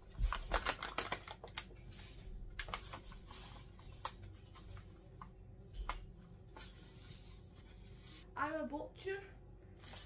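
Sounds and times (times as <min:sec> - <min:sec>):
bag crinkling: 0:00.2 - 0:01.7.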